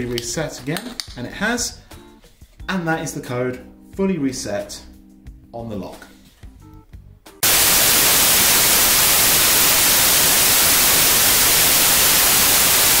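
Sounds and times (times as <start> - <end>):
television static hiss: 7.4 - 13.0.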